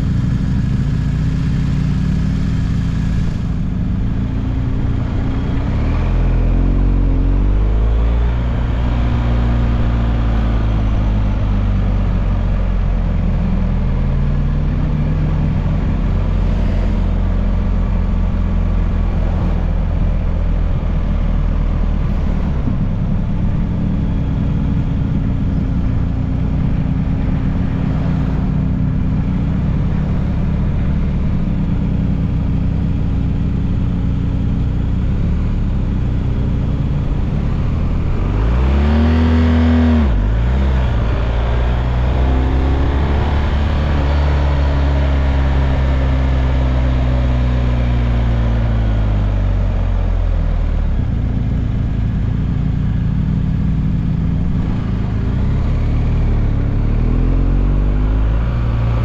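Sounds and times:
motorcycle engine running: 0.0 - 59.0
wind noise: 15.3 - 31.5.

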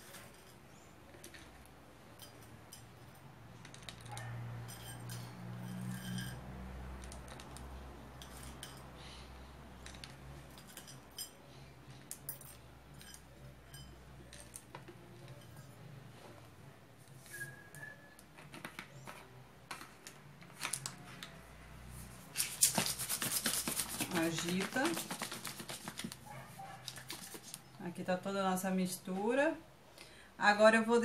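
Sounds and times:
small metal bowls clinking: 0.0 - 9.0, 9.7 - 16.4.

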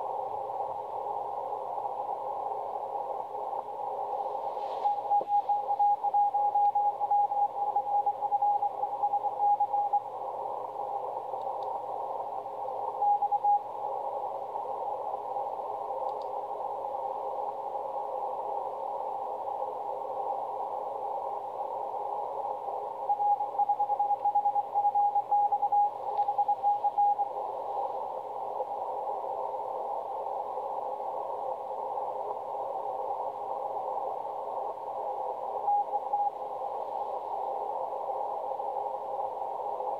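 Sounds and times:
radio band hiss: 0.0 - 39.9.

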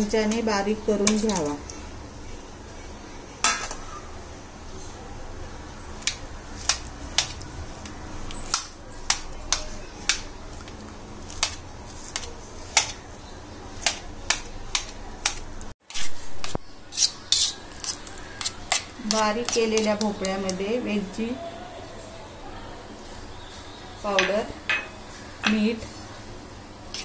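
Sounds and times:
spoon tapping metal bowl: 24.2 - 25.6.

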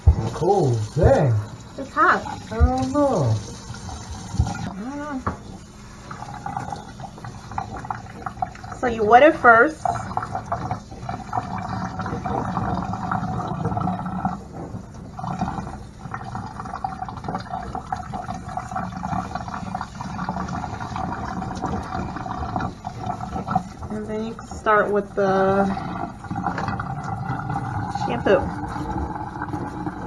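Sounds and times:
water splashing into steel sink: 0.0 - 4.7.

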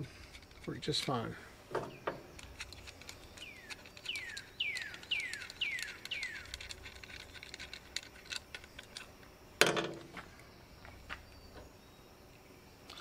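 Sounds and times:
bird whistling: 3.4 - 6.6.

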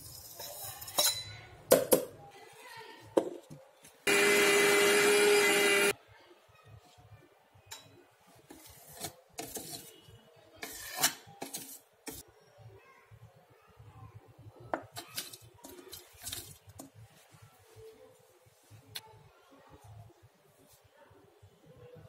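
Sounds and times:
spoon scraping metal jar: 8.5 - 12.2, 15.0 - 16.9.

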